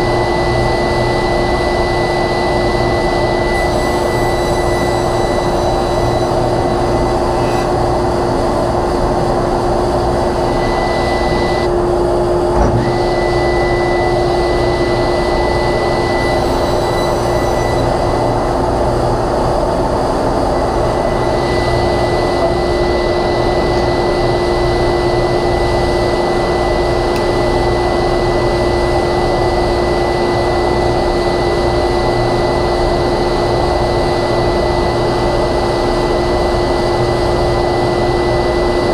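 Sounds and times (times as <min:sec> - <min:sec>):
dust collector and table saw running: 0:00.0 - 0:38.9.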